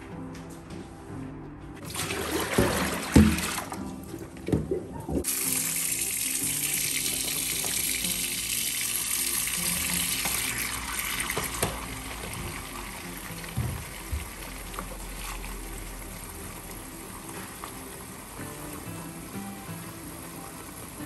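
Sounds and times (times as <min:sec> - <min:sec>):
background music: 0:00.0 - 0:21.0
tap water running into basin: 0:01.8 - 0:21.0
basin knocking against sink: 0:02.4 - 0:03.7.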